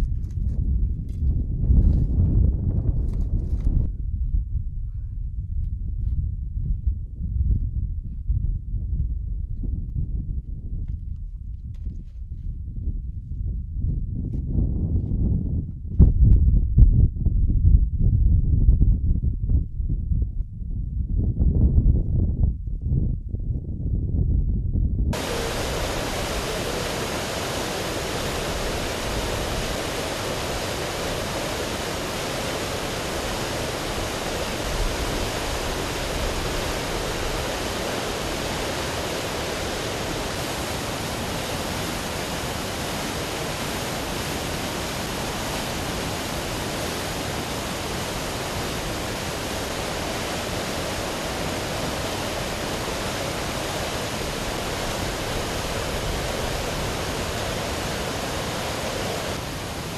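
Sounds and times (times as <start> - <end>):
water rushing: 25.2 - 59.9.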